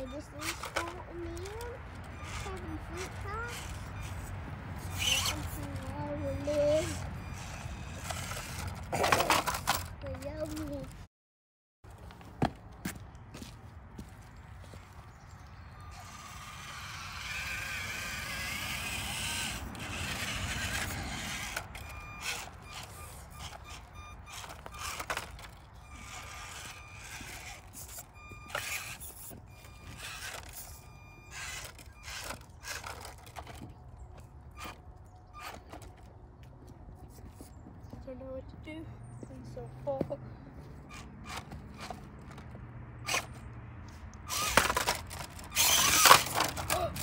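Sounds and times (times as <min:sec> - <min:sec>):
electric motor whine: 0:00.0 - 0:08.8, 0:15.5 - 0:33.8, 0:44.3 - 0:47.0
tyres scraping on stones: 0:00.0 - 0:11.0, 0:16.0 - 0:36.1, 0:40.9 - 0:43.4, 0:44.3 - 0:47.0.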